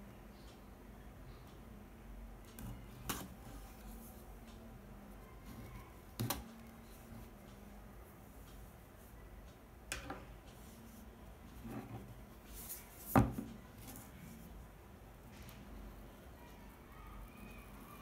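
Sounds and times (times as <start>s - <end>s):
soft rustling of packaging: 10.5s - 18.0s.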